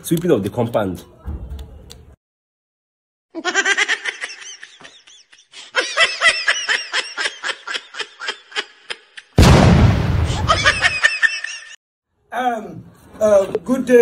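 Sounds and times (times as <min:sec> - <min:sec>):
person laughing hard: 0:10.3 - 0:11.8.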